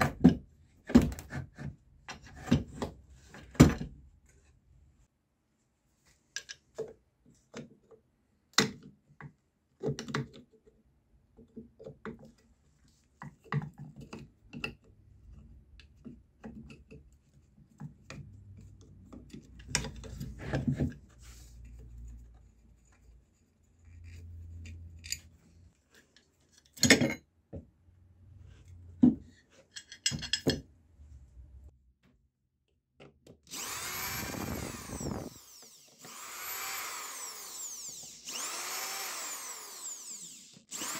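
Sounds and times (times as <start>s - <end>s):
screwdriver clicks and scrapes: 23.8s - 25.4s
cordless drill motor: 33.5s - 40.9s.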